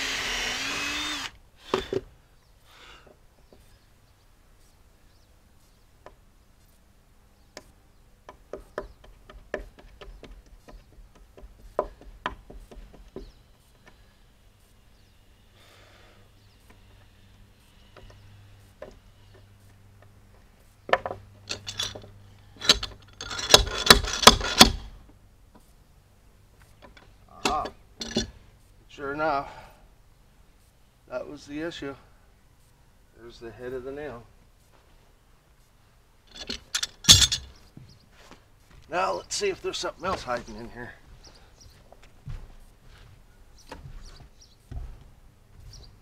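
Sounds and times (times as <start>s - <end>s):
hand tools scraping wood: 21.0s - 24.8s.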